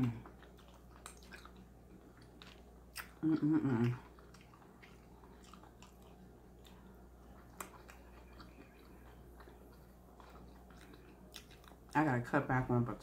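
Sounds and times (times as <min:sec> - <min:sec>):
chewing mouth clicks: 0:00.0 - 0:12.0
low steady hum: 0:00.0 - 0:13.0.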